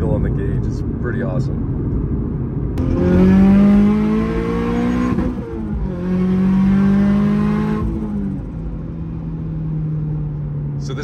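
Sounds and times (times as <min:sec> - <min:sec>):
car engine revving under boost: 0:02.8 - 0:08.7.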